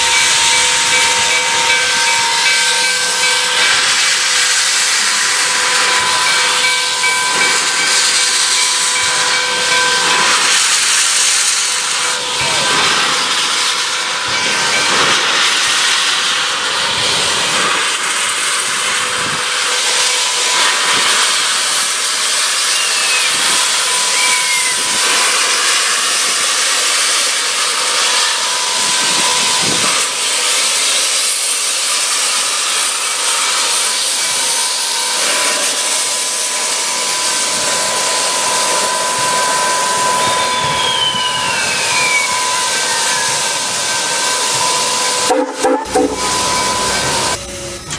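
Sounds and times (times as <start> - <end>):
steam hissing: 0.0 - 47.9
thin steady whine: 34.1 - 47.9.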